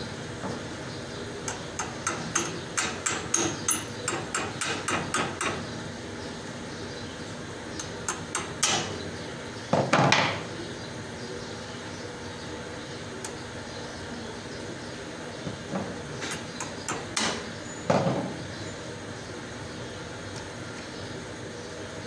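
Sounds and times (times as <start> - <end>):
metal tool tapping on metal: 1.5 - 5.6, 7.8 - 8.9, 16.2 - 17.5.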